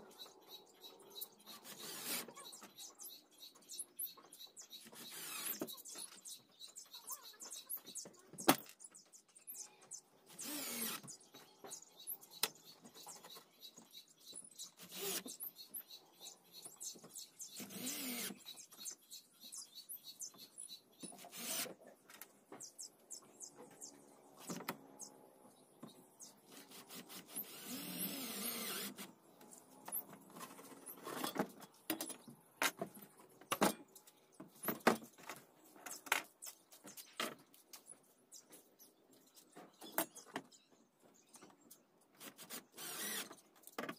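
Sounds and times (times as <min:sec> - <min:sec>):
cordless drill driving screws: 0:01.6 - 0:02.3, 0:10.3 - 0:11.2, 0:14.8 - 0:15.3, 0:17.6 - 0:18.4, 0:21.2 - 0:21.7, 0:26.5 - 0:29.1, 0:42.3 - 0:43.4
clicks of screws and metal fittings: 0:31.0 - 0:37.9.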